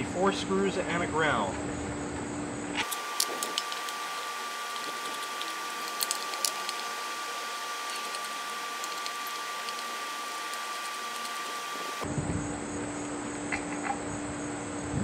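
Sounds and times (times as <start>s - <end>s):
screwdriver clicking on screws: 2.8s - 12.0s
steady hiss: 2.8s - 12.0s.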